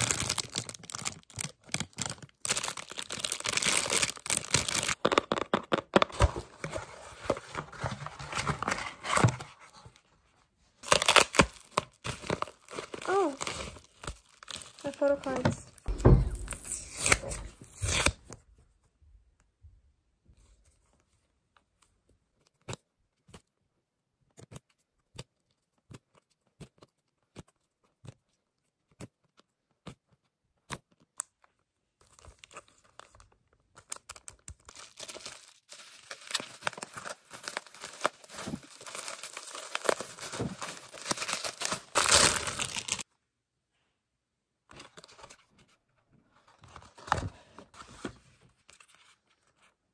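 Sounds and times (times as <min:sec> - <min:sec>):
plastic wrapping crinkling: 0:00.0 - 0:09.2, 0:10.8 - 0:17.5, 0:33.8 - 0:43.1.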